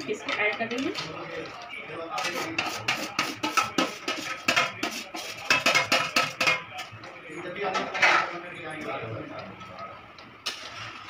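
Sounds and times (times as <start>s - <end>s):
metal spatula scraping steel plate: 2.2s - 6.8s, 10.4s - 11.0s.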